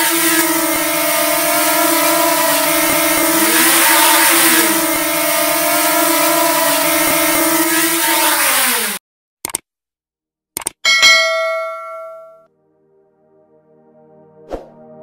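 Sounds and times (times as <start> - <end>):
quadcopter drone motors humming: 0.0 - 9.0.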